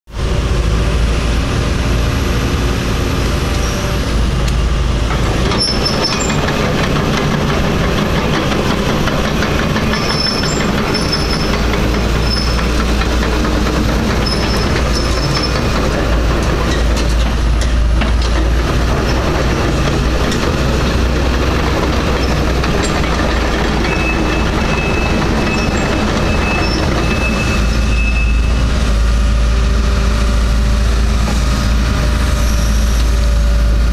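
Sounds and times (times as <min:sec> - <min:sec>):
excavator diesel engine running: 0:00.1 - 0:33.9.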